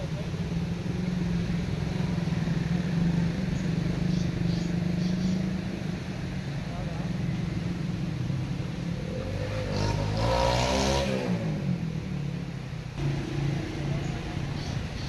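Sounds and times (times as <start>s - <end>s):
vehicle driving past: 1.1s - 12.3s, 12.9s - 15.0s
low engine drone: 11.5s - 15.0s.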